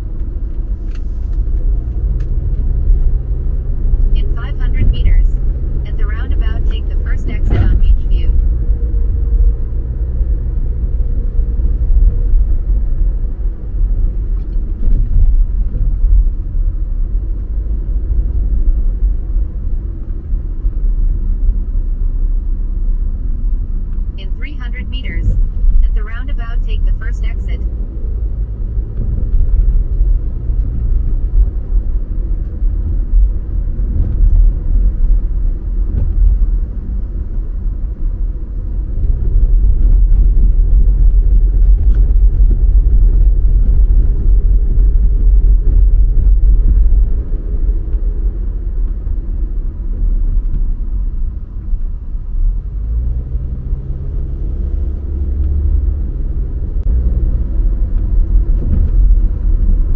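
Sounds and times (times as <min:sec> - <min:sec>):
car road and engine rumble: 0:00.0 - 0:59.9.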